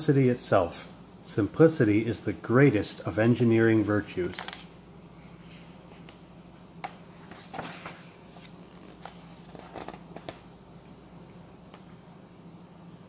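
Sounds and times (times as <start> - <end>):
faint steady hum: 0.0 - 13.0
book pages turning: 4.3 - 4.7, 7.2 - 10.5
paper rustling and light clicks: 4.3 - 4.7, 6.8 - 10.4.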